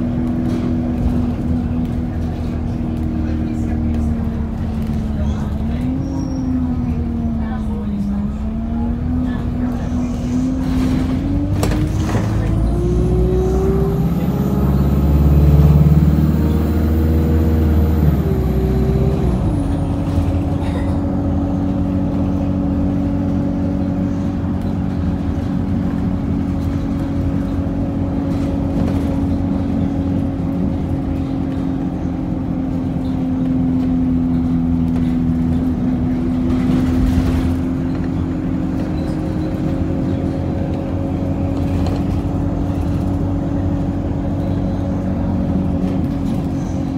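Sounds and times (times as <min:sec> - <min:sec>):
bus engine: 0:00.0 - 0:46.9
road noise rumble: 0:00.0 - 0:46.9.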